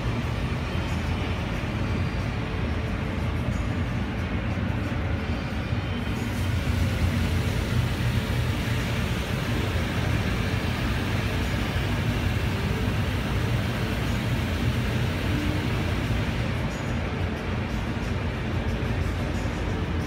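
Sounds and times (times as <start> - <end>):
wash machinery hum: 0.0 - 20.0
high-pressure water spray: 6.1 - 16.7.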